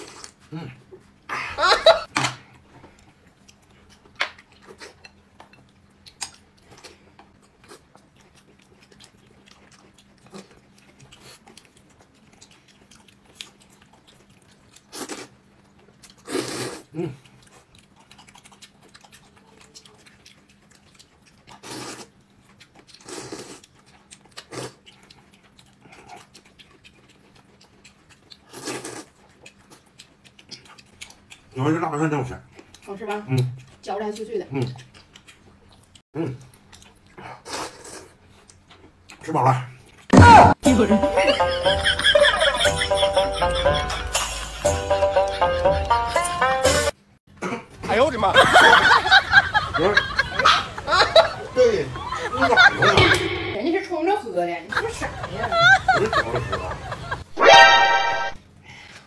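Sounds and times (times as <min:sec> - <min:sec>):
person chewing crunchy food: 0:02.5 - 0:31.6, 0:32.3 - 0:40.2.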